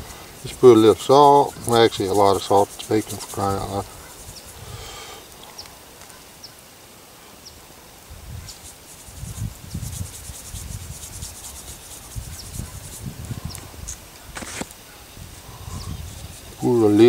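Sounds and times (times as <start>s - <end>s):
salt shaker rattling: 0.0s - 4.6s, 8.5s - 13.2s.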